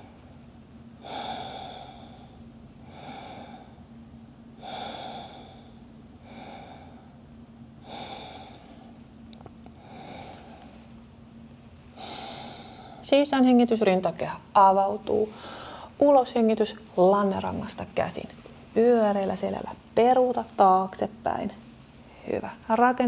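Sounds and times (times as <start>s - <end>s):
woman breathing slowly: 1.0s - 4.0s, 4.6s - 9.1s, 9.7s - 11.0s, 11.8s - 13.1s, 15.3s - 16.0s.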